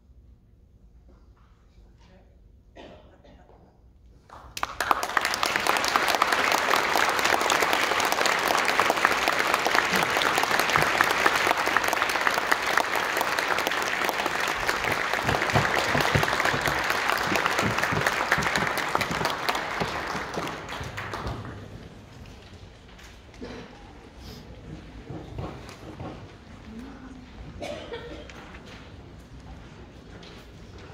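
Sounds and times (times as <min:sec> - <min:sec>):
audience applauding: 0:04.3 - 0:23.5.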